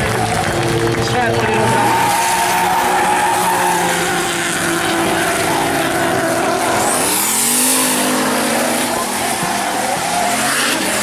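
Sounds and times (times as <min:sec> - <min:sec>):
car engine at high revs: 0:00.0 - 0:11.0
tyres squealing: 0:01.4 - 0:11.0.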